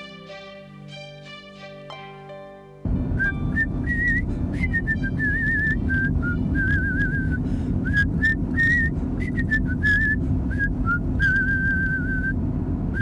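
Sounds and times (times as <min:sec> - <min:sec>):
car engine rumble: 0:02.9 - 0:13.0
road noise: 0:02.9 - 0:13.0
person whistling a tune: 0:03.2 - 0:13.0.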